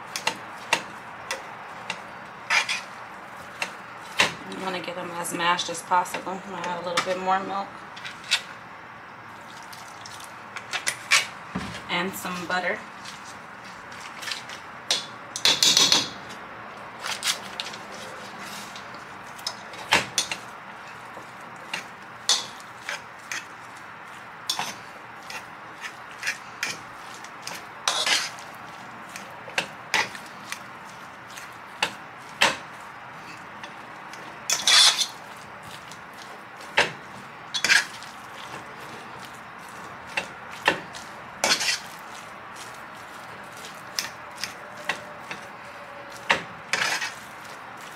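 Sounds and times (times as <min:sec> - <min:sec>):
utensil mashing potatoes in metal pot: 0:24.5 - 0:47.9.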